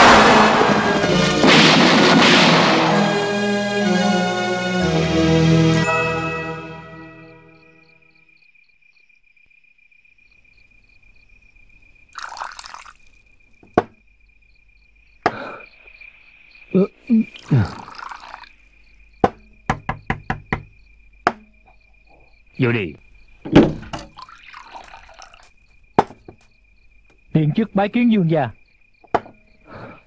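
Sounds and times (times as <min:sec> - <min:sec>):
crickets chirping: 0:02.9 - 0:30.0
wine pouring into cup: 0:12.1 - 0:13.2, 0:17.1 - 0:18.6, 0:23.7 - 0:25.5
cup and jug knocking on table: 0:13.6 - 0:14.0, 0:19.2 - 0:21.5, 0:23.5 - 0:24.2, 0:26.0 - 0:26.4.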